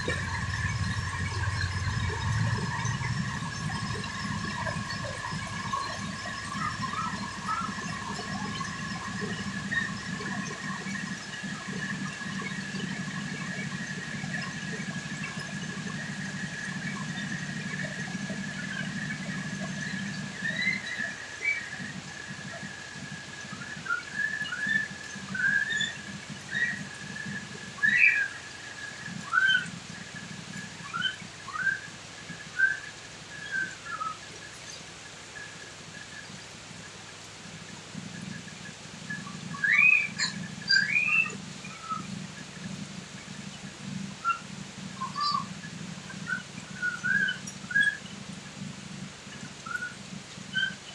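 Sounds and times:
high whistle-like tone: 0:00.0 - 0:11.0, 0:46.3 - 0:48.0.

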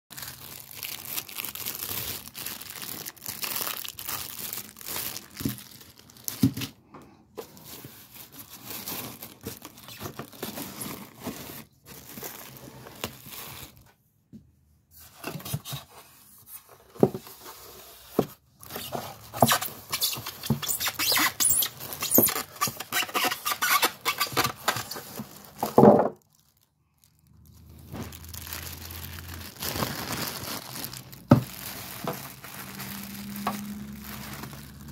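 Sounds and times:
plastic wrap crinkling: 0:00.1 - 0:06.8, 0:07.4 - 0:13.9, 0:18.5 - 0:34.9.

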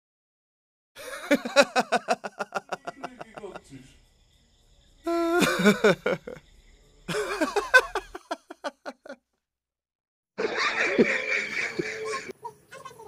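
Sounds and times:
person laughing: 0:01.0 - 0:03.6, 0:05.1 - 0:06.4, 0:07.1 - 0:09.2, 0:10.4 - 0:12.3.

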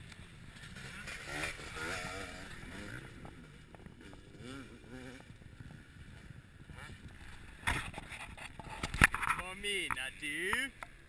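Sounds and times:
motocross bike revving past: 0:00.3 - 0:07.9
wind noise on microphone: 0:02.0 - 0:09.6.

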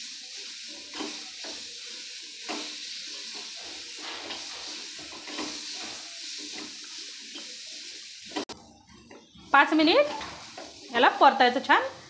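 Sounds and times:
food sizzling in a pan: 0:00.0 - 0:12.0
spoon scraping a metal pan: 0:00.5 - 0:08.2.

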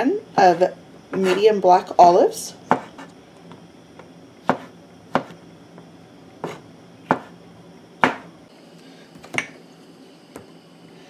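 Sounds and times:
knife knocking on cutting board: 0:07.1 - 0:07.3.

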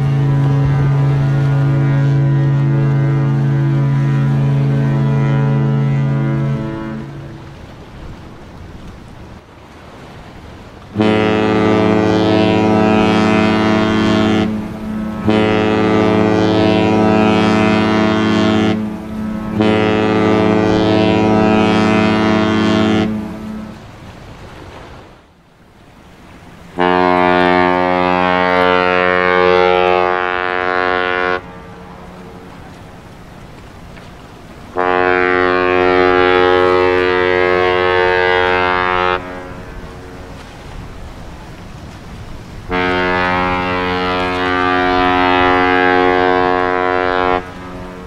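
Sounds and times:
second ship horn blast: 0:00.0 - 0:07.7, 0:10.9 - 0:24.0, 0:26.6 - 0:32.8, 0:34.7 - 0:40.8, 0:42.6 - 0:48.0
ship horn blasts: 0:00.0 - 0:08.5, 0:10.6 - 0:24.3, 0:26.0 - 0:48.0.

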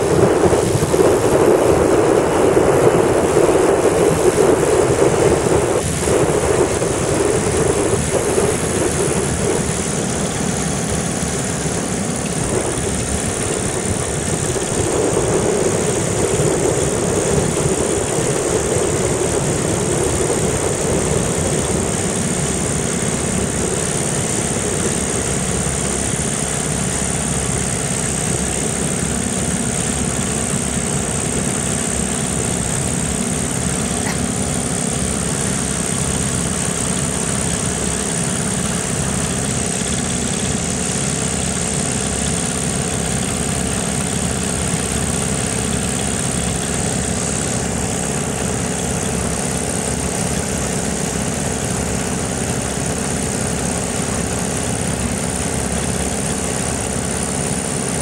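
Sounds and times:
wind noise on microphone: 0:00.0 - 0:41.8
small aircraft engines running: 0:00.0 - 0:58.0.

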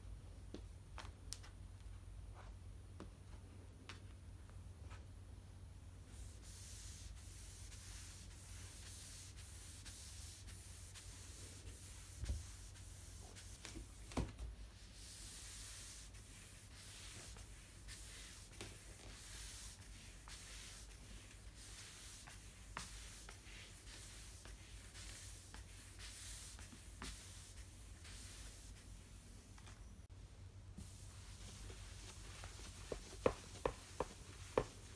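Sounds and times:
cloth pad swishing over wooden floor: 0:30.8 - 0:34.9.

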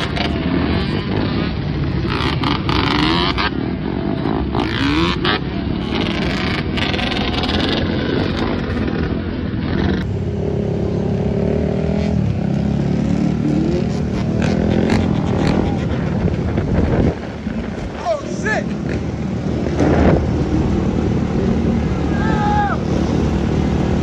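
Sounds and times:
quad and dirt bike engines revving: 0:00.0 - 0:24.0.

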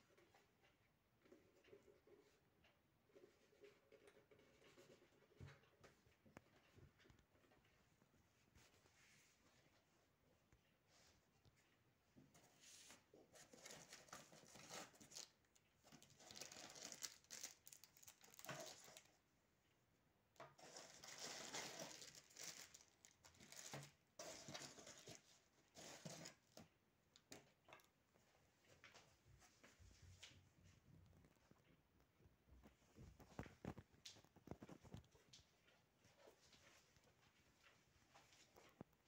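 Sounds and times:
plastic bags crinkling: 0:15.9 - 0:19.1, 0:20.6 - 0:25.2.

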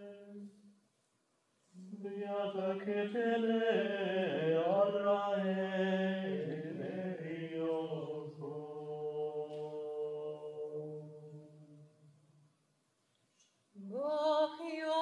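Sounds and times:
choir singing a hymn: 0:02.1 - 0:11.2.

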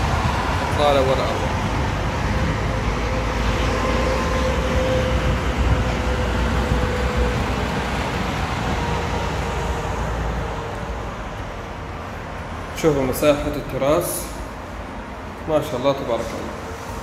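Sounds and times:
highway traffic noise: 0:00.0 - 0:17.0.

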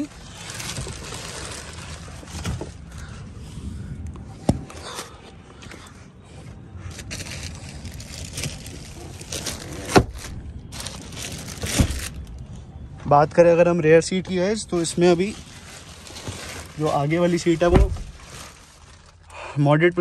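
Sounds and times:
plastic covers rustling and crackling: 0:00.0 - 0:03.1, 0:06.8 - 0:12.4, 0:14.1 - 0:20.0.

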